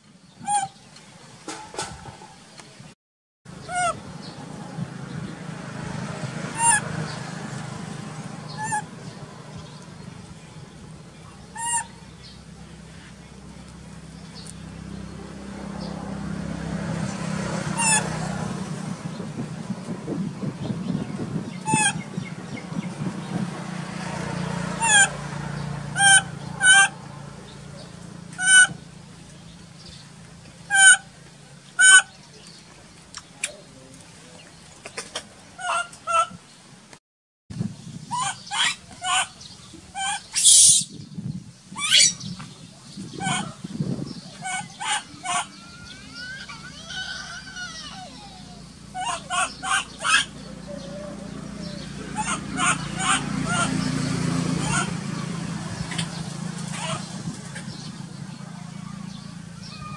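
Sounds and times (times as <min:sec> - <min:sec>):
baby monkey crying: 0:03.6 - 0:04.0, 0:08.6 - 0:08.9, 0:21.6 - 0:22.0, 0:38.1 - 0:39.4, 0:40.0 - 0:40.9, 0:41.8 - 0:42.2, 0:43.2 - 0:43.7, 0:44.4 - 0:53.8, 0:54.6 - 0:55.0, 0:59.6 - 0:59.9
high-pitched animal calls: 0:08.5 - 0:08.9, 0:11.4 - 0:12.0, 0:17.8 - 0:18.1, 0:26.0 - 0:27.0, 0:38.1 - 0:39.4, 0:40.0 - 0:40.9, 0:41.8 - 0:42.2, 0:43.2 - 0:43.7, 0:44.3 - 0:53.8, 0:54.6 - 0:55.0, 0:59.6 - 0:59.9.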